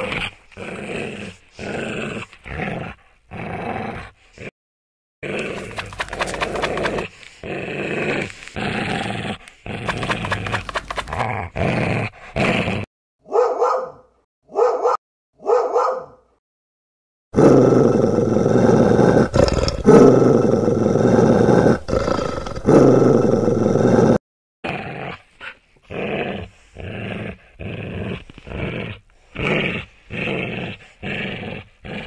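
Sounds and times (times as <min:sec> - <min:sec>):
dog growling: 0:00.0 - 0:04.5, 0:05.2 - 0:12.9, 0:17.4 - 0:32.0
dog barking: 0:05.5 - 0:07.0, 0:13.2 - 0:16.3.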